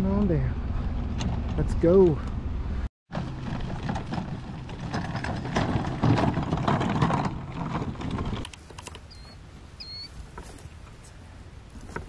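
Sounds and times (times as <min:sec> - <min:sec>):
wagon rattling over rough ground: 0:03.1 - 0:09.4
short high chirps: 0:09.1 - 0:10.1.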